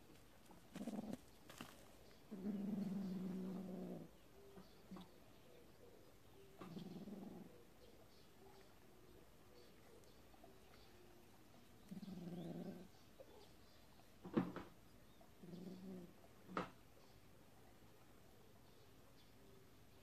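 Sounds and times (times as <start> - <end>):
kitten growling: 11.9 - 12.9.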